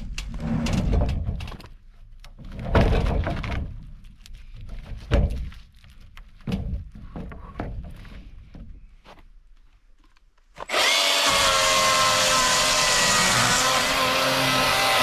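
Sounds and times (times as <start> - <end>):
wooden slabs knocking and scraping: 0.0 - 9.3.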